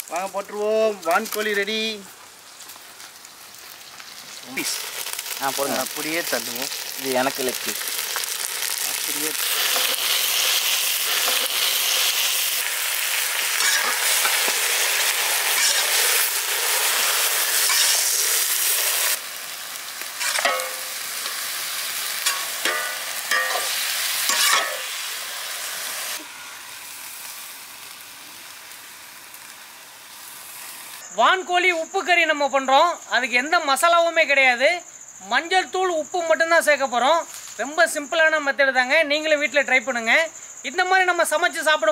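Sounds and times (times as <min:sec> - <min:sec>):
meat sizzling in hot oil: 0:00.0 - 0:31.1
metal ladle scraping pan: 0:13.6 - 0:14.5, 0:15.5 - 0:16.0, 0:17.6 - 0:18.1, 0:20.2 - 0:21.0, 0:22.2 - 0:24.9.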